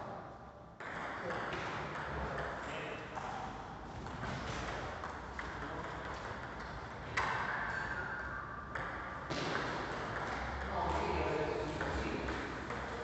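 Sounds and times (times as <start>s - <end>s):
background noise: 0.0s - 13.0s
table tennis balls clicking: 8.7s - 13.0s.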